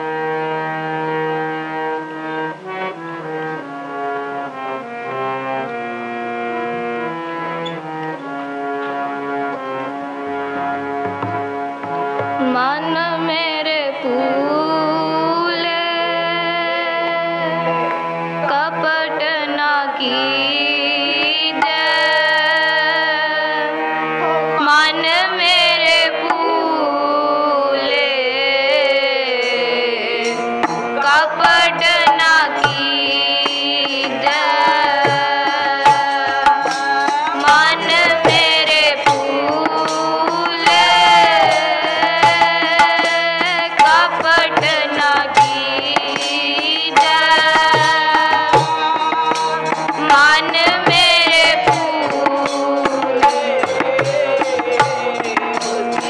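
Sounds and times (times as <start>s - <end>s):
harmonium chords: 0.0s - 56.0s
tabla strokes: 1.5s - 13.4s, 29.4s - 56.0s
woman singing: 12.4s - 17.7s, 18.4s - 23.8s, 24.6s - 56.0s.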